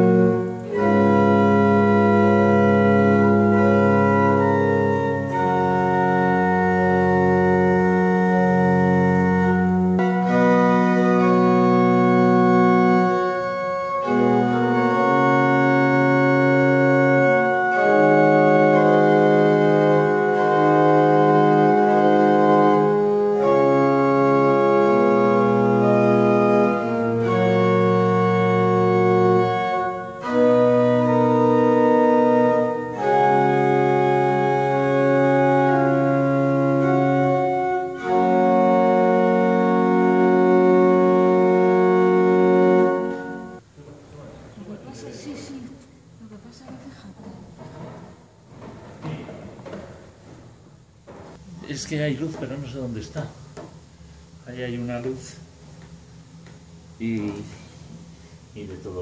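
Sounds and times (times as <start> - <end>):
deep bass organ note: 0.0 - 43.6
pipe organ chords: 0.0 - 43.8, 47.8 - 59.0.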